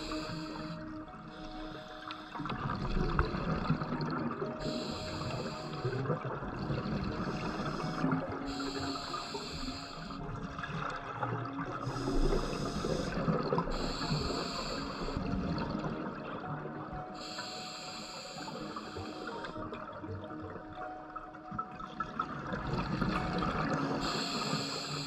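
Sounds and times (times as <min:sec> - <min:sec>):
diver breathing through regulator: 0:00.0 - 0:02.6, 0:04.6 - 0:06.2, 0:06.9 - 0:10.2, 0:11.8 - 0:15.4, 0:17.2 - 0:19.6, 0:24.0 - 0:25.0.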